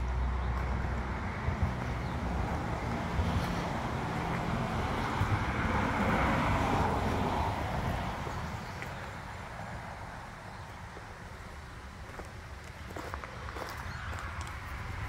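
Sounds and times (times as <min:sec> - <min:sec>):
motor vehicle running: 0:00.0 - 0:08.0.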